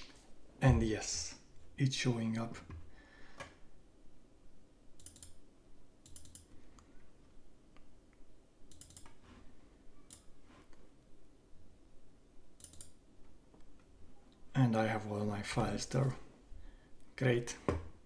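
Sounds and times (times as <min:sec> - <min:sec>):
computer mouse clicking: 0:05.0 - 0:05.4, 0:06.0 - 0:06.9, 0:07.8 - 0:09.2, 0:10.0 - 0:10.8, 0:12.6 - 0:13.0.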